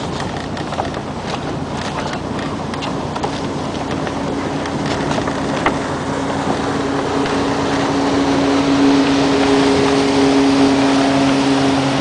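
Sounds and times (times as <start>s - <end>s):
rigging clicks: 0.0s - 5.8s
boat engine hum: 0.0s - 12.0s
wind buffeting microphone: 0.0s - 12.0s.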